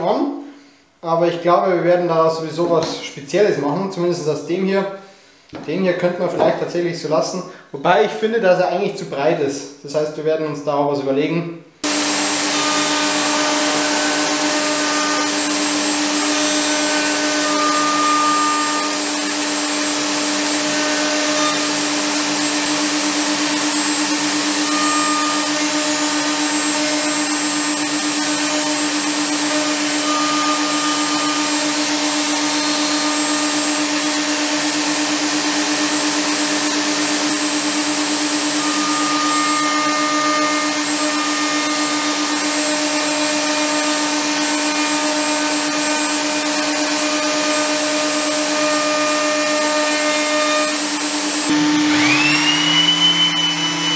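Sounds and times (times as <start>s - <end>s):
wood router cutting wood: 11.8s - 53.9s.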